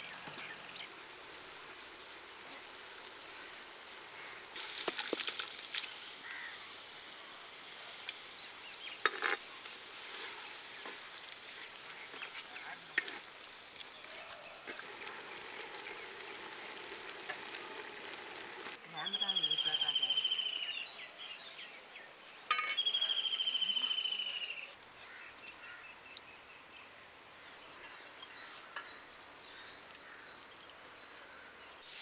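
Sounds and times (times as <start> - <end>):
chicken frying in oil: 13.0 - 18.8.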